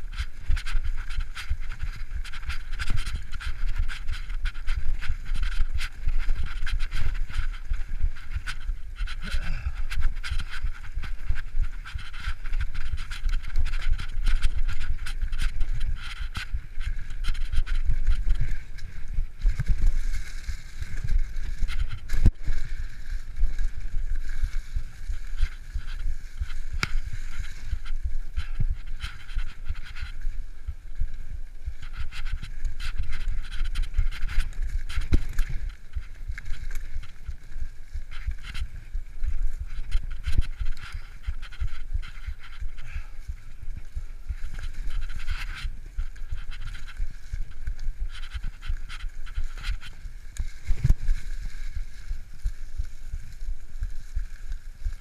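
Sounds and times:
bike tyres rumbling: 0.0s - 55.0s
wind buffeting microphone: 0.0s - 55.0s
heavy breathing: 9.2s - 10.0s.

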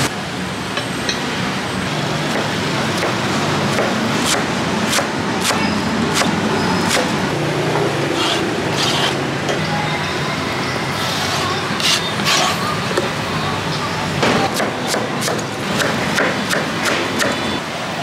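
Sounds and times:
street traffic noise: 0.0s - 18.0s
knife chopping on cutting board: 2.3s - 7.1s.

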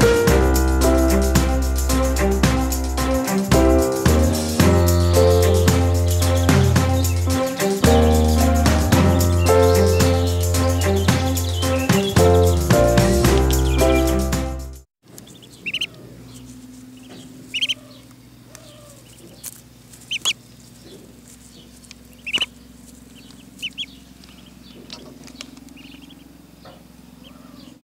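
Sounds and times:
ducklings peeping: 4.6s - 14.2s, 15.1s - 27.8s.

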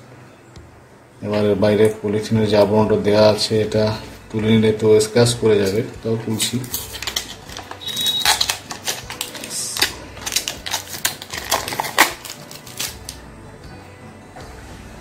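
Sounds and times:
plastic case handled: 6.3s - 12.9s
plastic film being peeled off: 6.4s - 13.2s.

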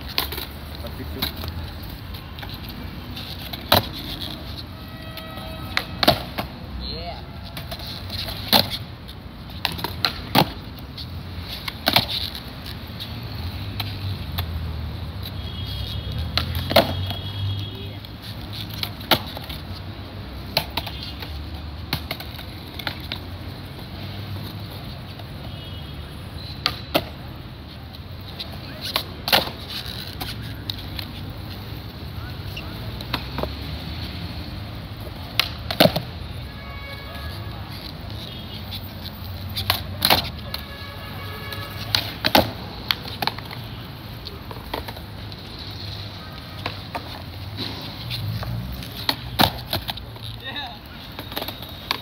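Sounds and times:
skateboard decks clacking on ground: 0.0s - 4.6s, 5.7s - 6.6s, 7.5s - 14.5s, 16.2s - 17.1s, 18.0s - 19.8s, 20.4s - 25.5s, 26.6s - 33.7s, 34.8s - 36.5s, 37.6s - 52.0s
skateboard wheels rolling: 0.0s - 52.0s
light skateboard knocks: 5.7s - 6.5s, 35.1s - 36.1s, 44.4s - 45.2s.

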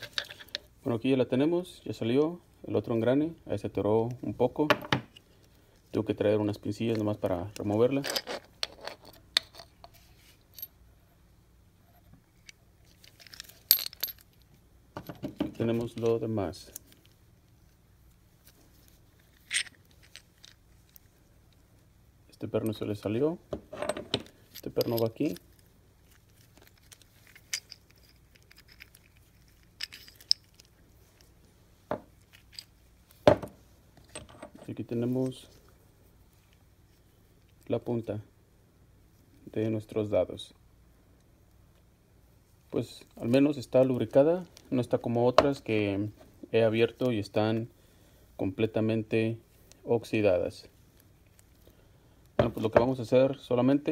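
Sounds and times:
soft scraping of metal parts: 0.0s - 0.9s, 6.7s - 21.7s, 22.6s - 37.6s
faint steady hum: 0.0s - 53.9s
small metal parts clicking: 12.4s - 14.5s, 19.2s - 21.6s, 24.2s - 31.3s, 32.1s - 33.2s.

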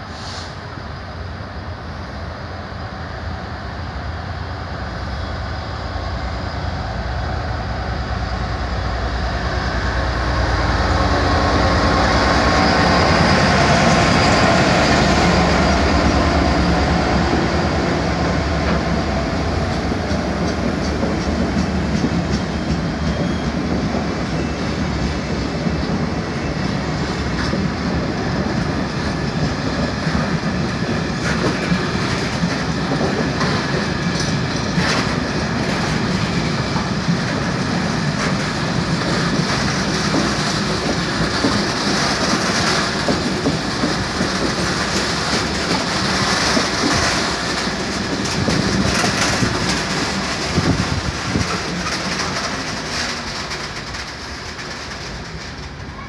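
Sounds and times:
diesel locomotive passing: 0.0s - 56.0s
wagon wheels clicking over rail joints: 38.1s - 56.0s.

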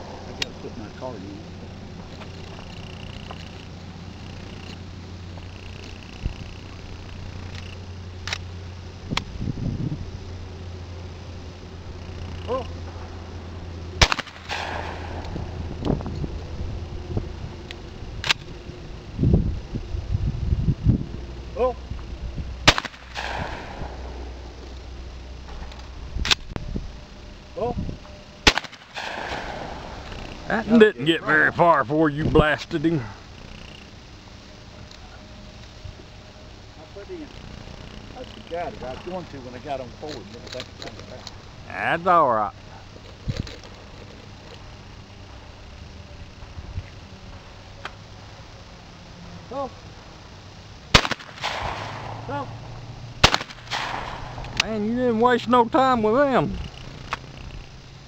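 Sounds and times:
shotgun shot with echo: 14.0s - 15.2s, 22.6s - 24.0s, 28.4s - 29.9s, 50.9s - 52.3s, 53.2s - 54.5s.

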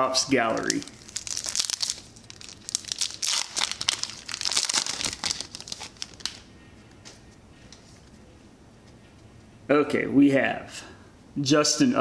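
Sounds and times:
foil wrapper tearing and crinkling: 0.5s - 6.4s.

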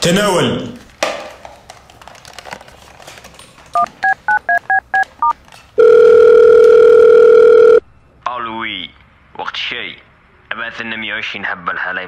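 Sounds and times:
telephone line tone: 5.8s - 7.8s.

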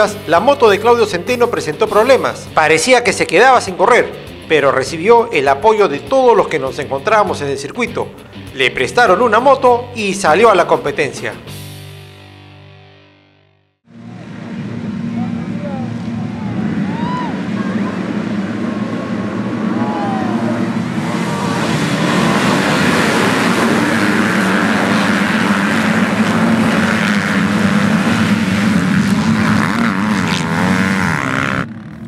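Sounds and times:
motocross bikes revving: 13.9s - 32.0s.

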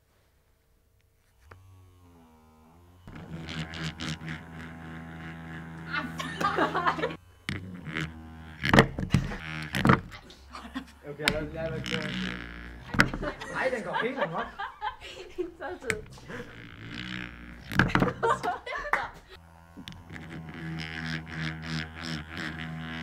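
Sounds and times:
vibrator motor buzzing: 1.2s - 23.0s
vibrator rattling against table: 3.1s - 14.0s, 15.7s - 23.0s.

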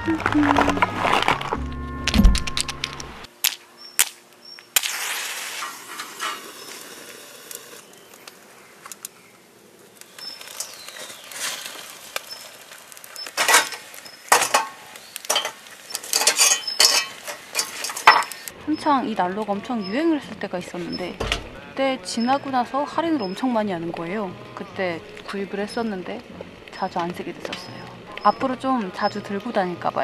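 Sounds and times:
fire crackling: 0.0s - 30.0s
tongs clinking on steel stove: 13.4s - 18.4s.

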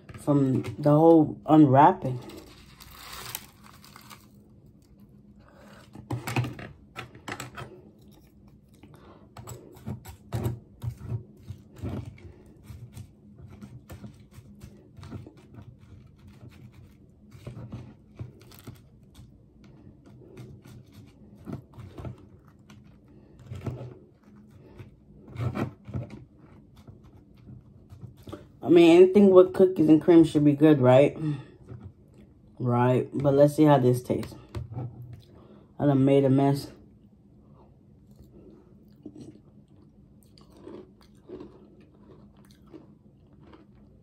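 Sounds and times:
plastic spoon scraping a cup: 9.4s - 18.9s, 19.7s - 28.6s.

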